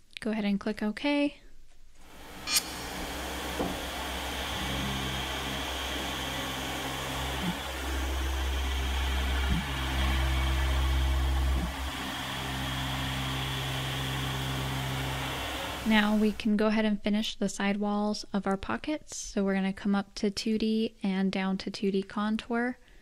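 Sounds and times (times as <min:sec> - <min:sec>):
milling machine cutting metal: 0:02.1 - 0:16.3.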